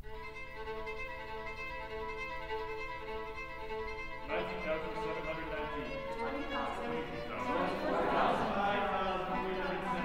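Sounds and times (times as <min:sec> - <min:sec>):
string orchestra sustained chord: 0:00.0 - 0:10.0
voices: 0:04.3 - 0:10.0.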